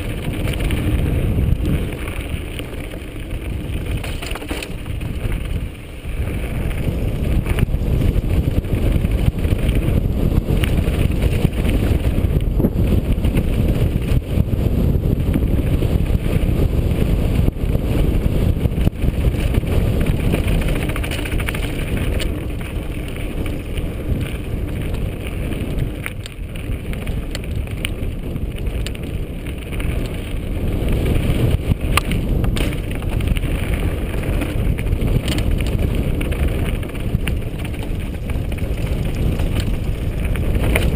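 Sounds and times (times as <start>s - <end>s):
stones and bike rattling: 0.0s - 40.9s
tyres over gravel: 0.0s - 40.9s
wind on microphone: 0.0s - 40.9s.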